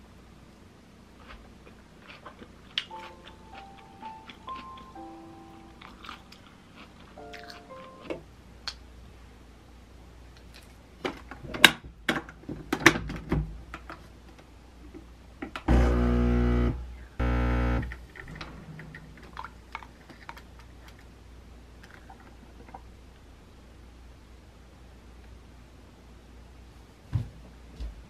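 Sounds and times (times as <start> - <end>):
espresso machine pump buzzing: 15.7 - 17.9.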